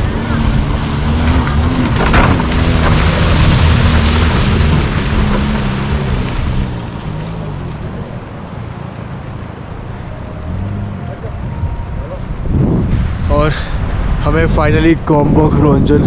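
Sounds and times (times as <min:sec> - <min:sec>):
loud rushing noise: 0:09.6 - 0:14.7.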